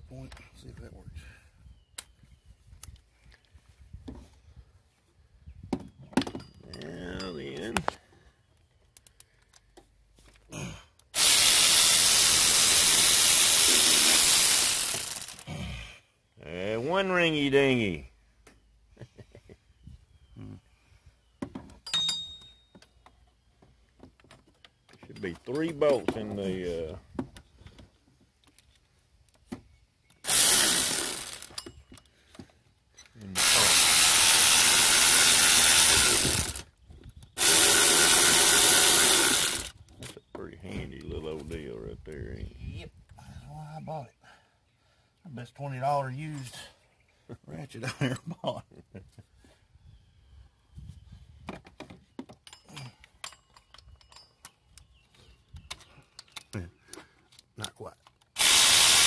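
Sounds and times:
cordless electric ratchet running: 0:11.2 - 0:15.4, 0:30.2 - 0:31.6, 0:33.4 - 0:36.7, 0:37.4 - 0:39.8, 0:58.4 - 0:59.0.

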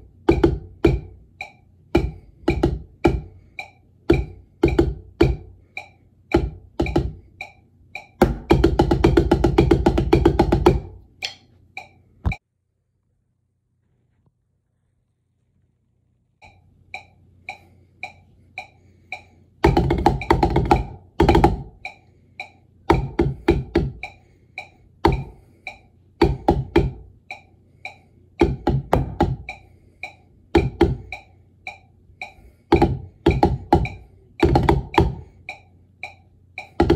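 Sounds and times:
metronome clicking: 0:00.2 - 0:08.6, 0:10.7 - 0:12.4, 0:16.4 - 0:19.4, 0:20.0 - 0:23.1, 0:23.9 - 0:36.9
drumsticks on rubber practice pad: 0:00.3 - 0:12.4, 0:16.4 - 0:36.9.

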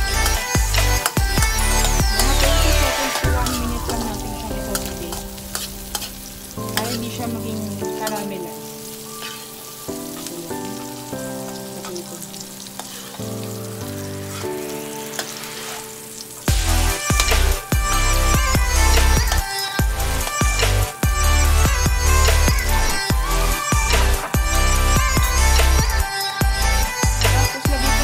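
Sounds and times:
onions sizzling in wok: 0:00.1 - 0:27.6
metal spatula scraping pan: 0:04.7 - 0:07.2, 0:14.2 - 0:16.1.

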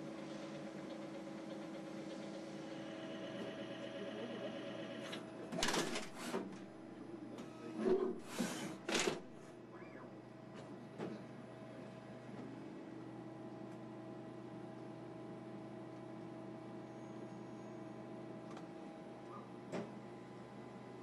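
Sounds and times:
lathe machine humming with whine: 0:01.4 - 0:05.0.

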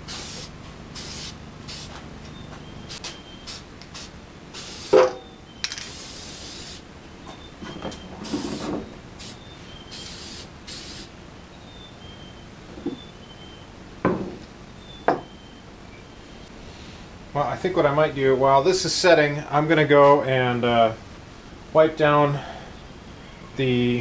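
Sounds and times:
aerosol can spraying: 0:00.0 - 0:02.0, 0:02.9 - 0:05.1, 0:05.8 - 0:06.8, 0:08.2 - 0:11.1
sharp clunk: 0:05.0 - 0:05.8.

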